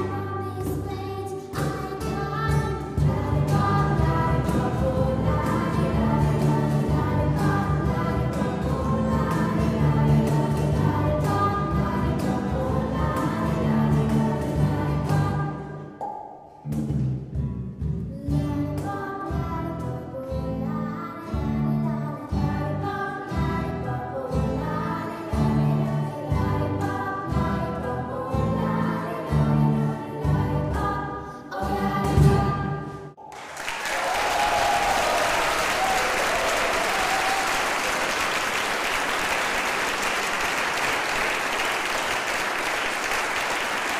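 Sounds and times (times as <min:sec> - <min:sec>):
strummed acoustic guitars: 0:00.0 - 0:15.8, 0:16.6 - 0:33.1
girl singing with choir: 0:00.0 - 0:16.0, 0:18.2 - 0:33.1
applause: 0:33.2 - 0:43.9.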